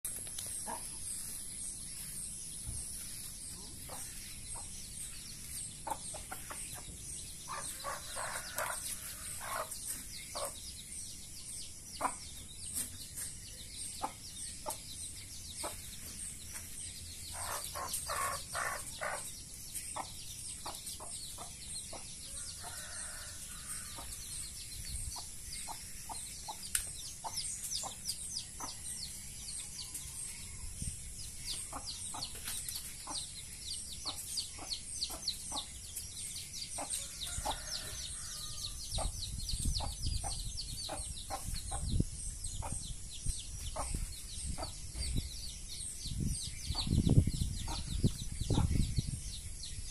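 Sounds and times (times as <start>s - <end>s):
chicks peeping: 0.1s - 49.9s
hen clucking: 17.3s - 19.3s.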